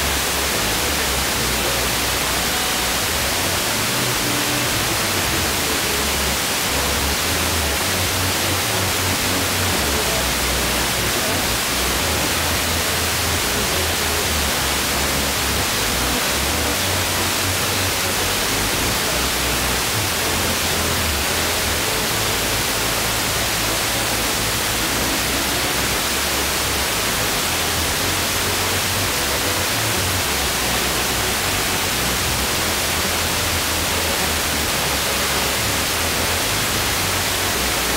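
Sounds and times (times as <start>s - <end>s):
radio static hiss: 0.0s - 37.9s.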